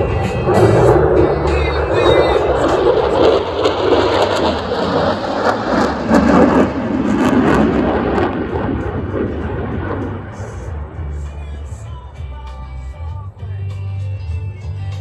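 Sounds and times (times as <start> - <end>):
fighter jet flying past: 0.0 - 11.2.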